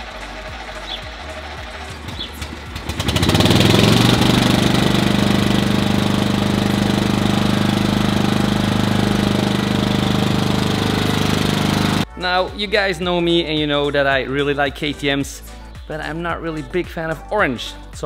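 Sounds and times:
lawn mower engine starting and running: 0:00.0 - 0:12.1.

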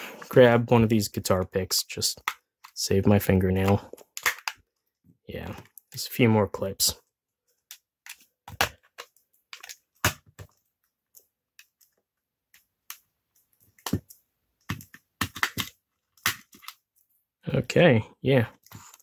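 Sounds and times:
plastic clips cracking: 0:03.5 - 0:04.8, 0:07.7 - 0:13.0, 0:13.6 - 0:17.0.

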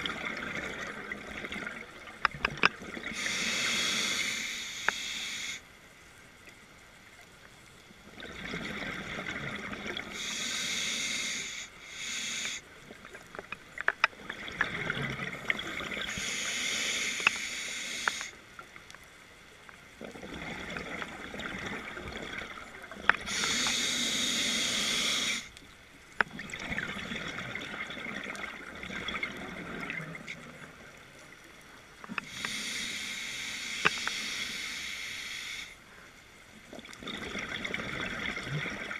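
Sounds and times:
regulator hissing inhale: 0:03.1 - 0:05.7, 0:10.1 - 0:12.7, 0:16.0 - 0:18.4, 0:23.2 - 0:25.6, 0:32.2 - 0:36.1.

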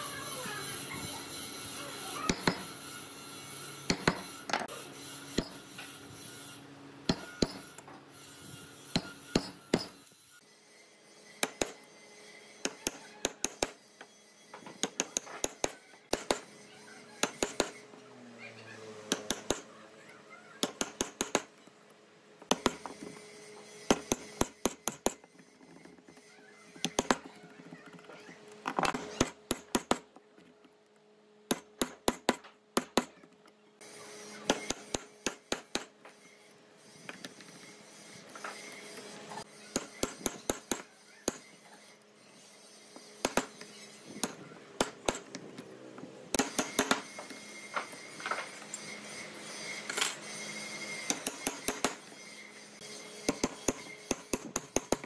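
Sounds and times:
mallet striking wood chisel: 0:02.3 - 0:02.7, 0:07.1 - 0:07.6.

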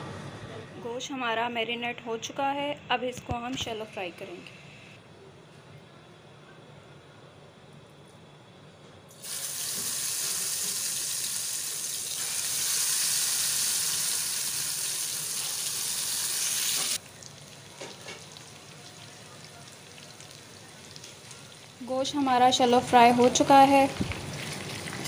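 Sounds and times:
meat sizzling in hot oil: 0:09.2 - 0:19.0.

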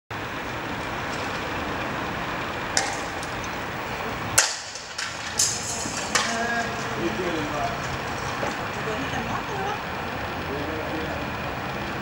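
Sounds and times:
street background noise: 0:00.1 - 0:12.0
sharp bangs: 0:04.3 - 0:08.6.

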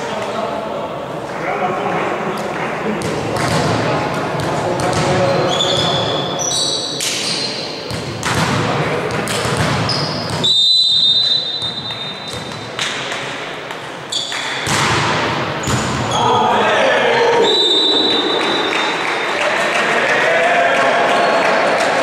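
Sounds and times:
volleyball bouncing on hardwood floor: 0:03.0 - 0:03.8, 0:04.4 - 0:05.2, 0:07.9 - 0:10.5, 0:14.4 - 0:16.0
referee's whistle: 0:09.9 - 0:12.4, 0:17.4 - 0:19.0
shoes squeaking: 0:14.1 - 0:14.7.

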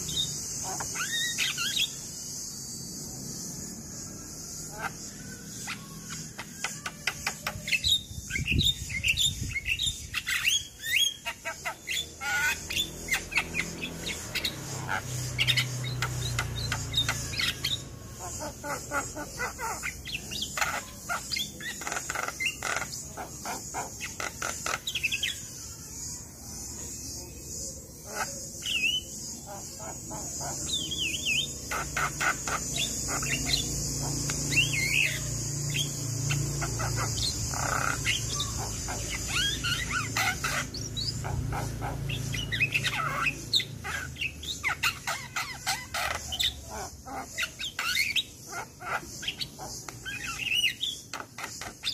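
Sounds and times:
bird singing harsh chatter: 0:00.0 - 0:51.9.

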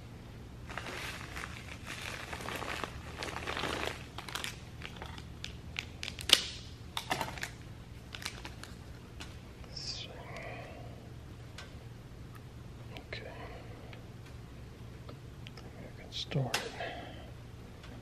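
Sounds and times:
plastic wrapper crinkling: 0:00.6 - 0:09.4.

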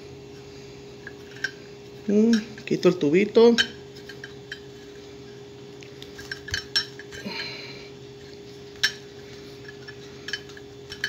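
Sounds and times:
steady low hum: 0:00.0 - 0:11.0
metal fittings clinking: 0:01.0 - 0:02.8, 0:03.5 - 0:04.7, 0:06.2 - 0:07.3, 0:08.7 - 0:11.0.

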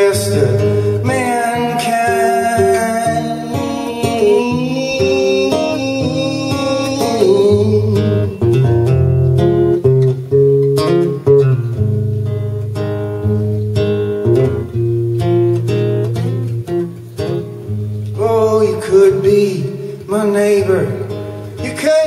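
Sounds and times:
acoustic guitar strummed and picked: 0:00.0 - 0:22.0.

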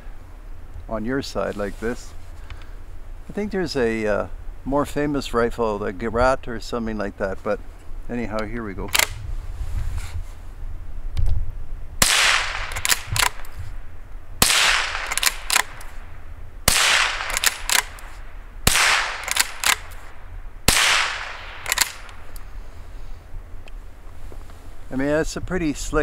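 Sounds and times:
rifle bolt clicking: 0:08.9 - 0:09.2, 0:12.6 - 0:13.6, 0:14.5 - 0:16.0, 0:16.8 - 0:20.1, 0:20.7 - 0:22.5
rifle shots: 0:12.0 - 0:13.6, 0:14.4 - 0:22.3.

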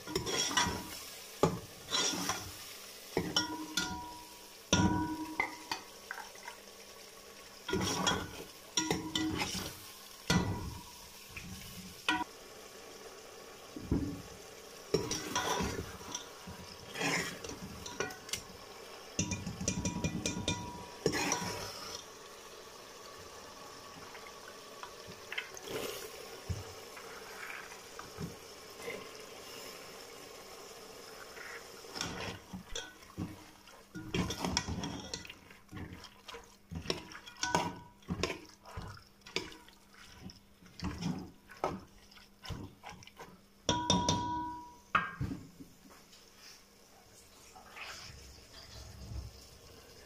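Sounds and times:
ladle scraping pot: 0:00.0 - 0:01.0, 0:01.8 - 0:02.5, 0:07.7 - 0:10.8, 0:14.9 - 0:18.4, 0:19.2 - 0:22.0, 0:31.3 - 0:41.8
masala sizzling in pot: 0:00.0 - 0:50.0.

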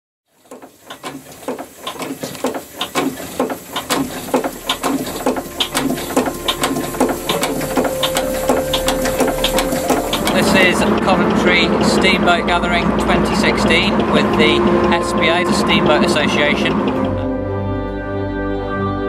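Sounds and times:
steam hiss: 0:00.4 - 0:10.8
steam engine clatter: 0:00.4 - 0:17.2.

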